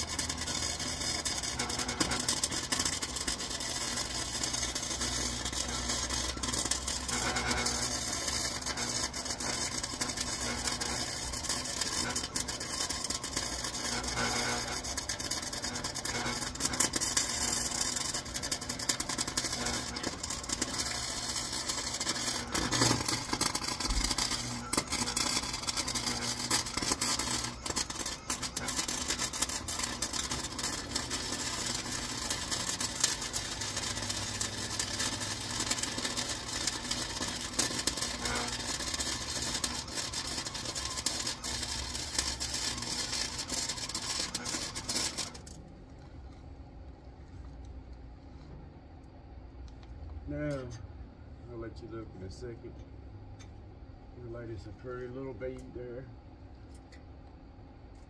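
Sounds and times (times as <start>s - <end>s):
welding arc crackling: 0.0s - 45.6s
welding pops: 0.0s - 45.6s.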